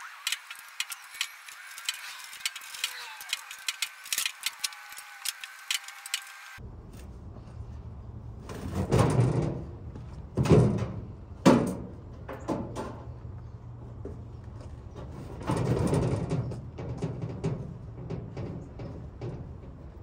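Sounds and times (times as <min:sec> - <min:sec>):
sheet metal scraping thuds: 0:08.5 - 0:09.7, 0:15.0 - 0:20.0.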